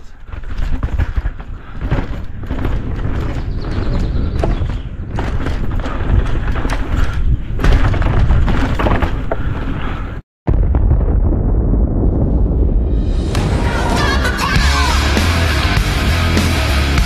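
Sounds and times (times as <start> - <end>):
bike knocks and rattles: 0.0 - 10.2
mountain bike rumbling on trail: 0.0 - 10.2.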